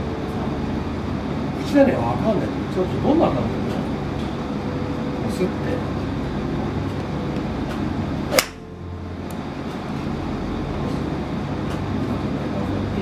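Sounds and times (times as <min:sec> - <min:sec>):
steady background hum: 0:00.0 - 0:13.0
golf club striking ball: 0:08.3 - 0:08.7.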